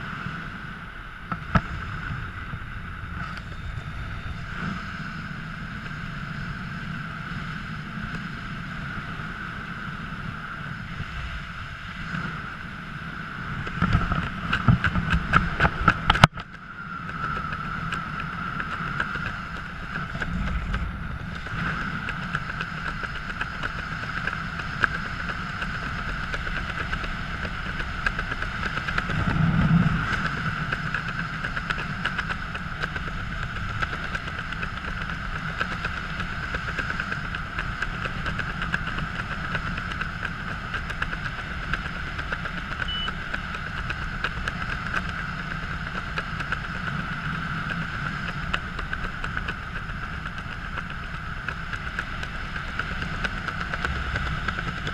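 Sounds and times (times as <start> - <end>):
wind rushing past microphone: 0.0 - 42.8
constant hum: 0.0 - 54.9.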